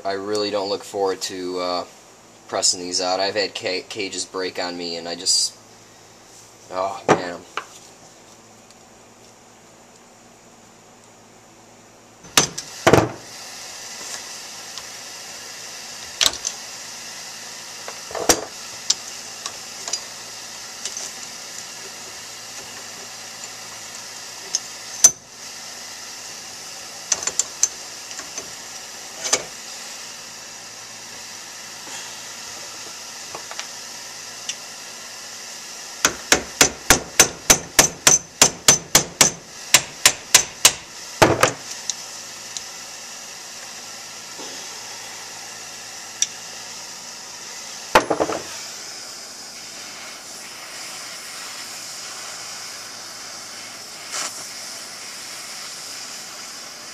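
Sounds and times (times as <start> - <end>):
gas torch hissing: 12.2 - 56.9.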